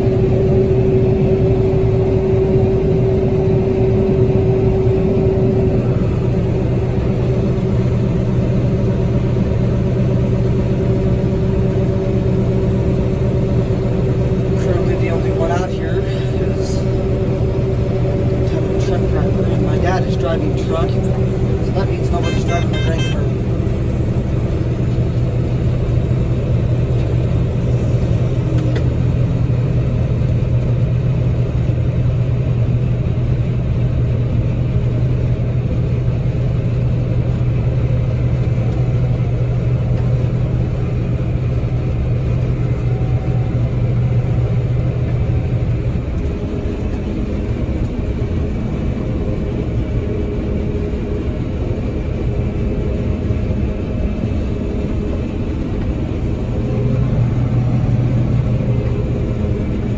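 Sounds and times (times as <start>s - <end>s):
combine harvester drone: 0.0s - 59.9s
low hum: 0.0s - 59.9s.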